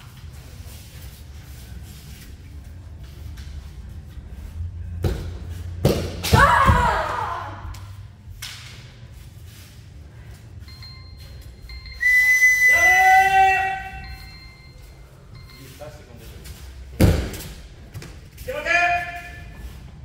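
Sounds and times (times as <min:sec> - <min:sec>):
high whistle-like tone: 0:10.7 - 0:14.8.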